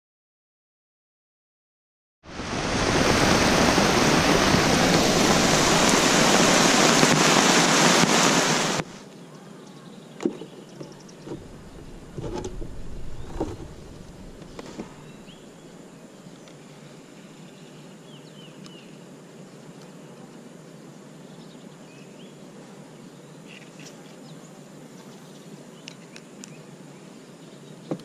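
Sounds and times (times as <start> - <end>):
heavy rain hissing: 2.2 - 9.1, 11.3 - 15.9.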